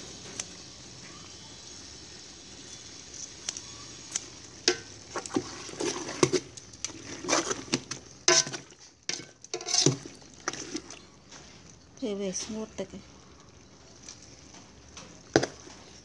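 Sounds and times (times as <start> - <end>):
tongs clattering in metal pot: 4.1 - 10.9.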